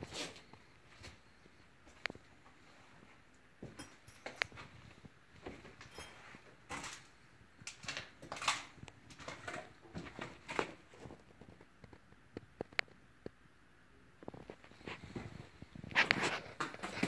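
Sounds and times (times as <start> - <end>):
soft rustles: 14.2 - 17.0.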